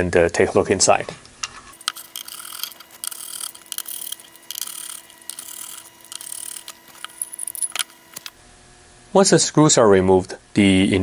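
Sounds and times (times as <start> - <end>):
screwdriver scratchy turning: 1.7 - 8.4.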